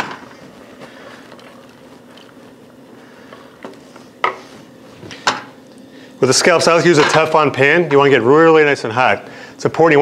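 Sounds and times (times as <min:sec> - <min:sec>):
faint steady hum: 0:00.0 - 0:10.0
wooden spoon stirring in saucepan: 0:00.3 - 0:04.8.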